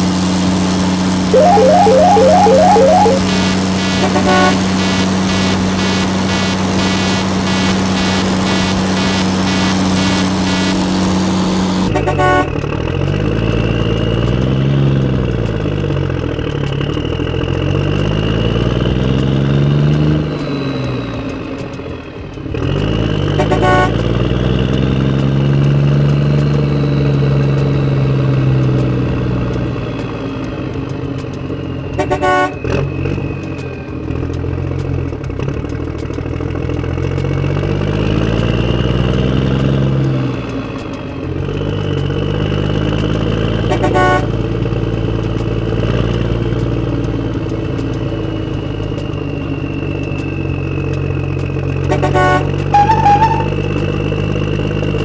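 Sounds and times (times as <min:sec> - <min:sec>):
engine revving: 0:01.3 - 0:15.1
pulsing horn-like drone: 0:01.4 - 0:10.9, 0:11.8 - 0:12.6, 0:23.4 - 0:24.1, 0:43.6 - 0:44.4, 0:51.9 - 0:53.7.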